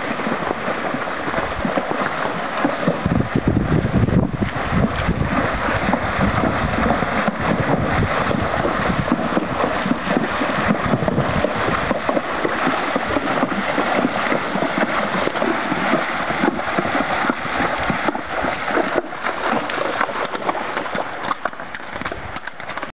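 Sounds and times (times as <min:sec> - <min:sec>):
horse splashing through river: 0:00.0 - 0:22.9
wind buffeting microphone: 0:02.8 - 0:19.7.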